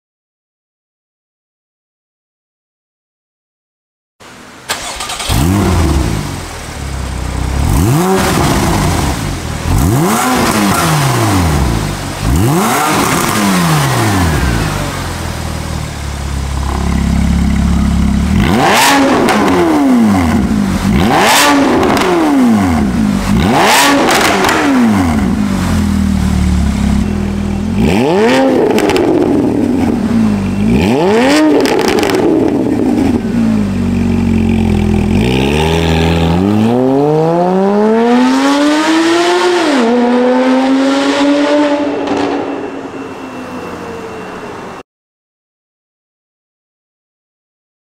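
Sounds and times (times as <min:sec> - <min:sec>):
sports car engine revving: 0:04.7 - 0:42.5
car accelerating: 0:04.7 - 0:44.8.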